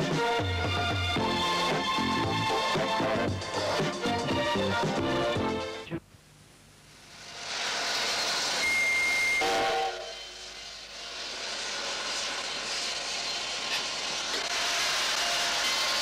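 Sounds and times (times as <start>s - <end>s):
short whistle-like tone: 8.6s - 10.4s.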